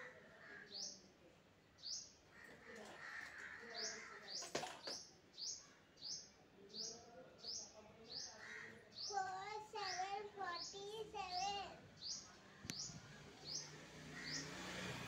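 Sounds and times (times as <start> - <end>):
small bird chirping: 9.0 - 14.6.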